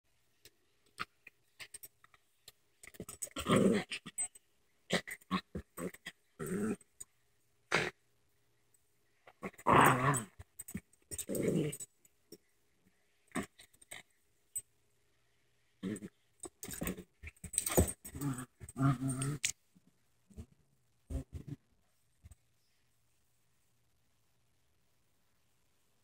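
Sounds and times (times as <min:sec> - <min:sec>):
small dogs growling: 0:03.4 - 0:04.2, 0:04.9 - 0:06.8, 0:09.4 - 0:10.4, 0:11.2 - 0:11.8, 0:18.1 - 0:19.5.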